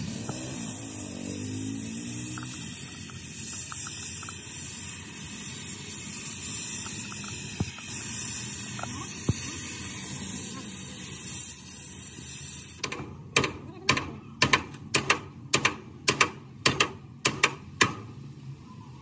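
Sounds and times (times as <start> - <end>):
gas torch flame hissing: 0.0 - 12.9.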